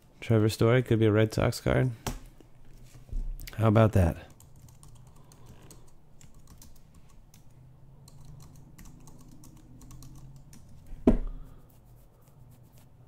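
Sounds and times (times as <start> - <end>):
low steady hum: 0.0 - 13.0
keyboard typing clicks: 4.4 - 10.7.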